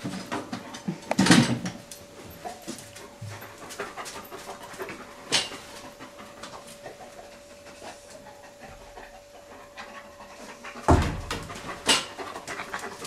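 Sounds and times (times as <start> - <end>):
faint steady hum: 0.0 - 13.0
dog panting and sniffing: 2.0 - 13.0.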